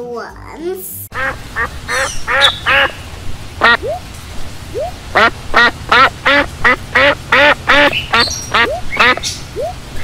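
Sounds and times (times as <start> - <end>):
duck quacking: 1.2 - 3.0, 5.1 - 9.2.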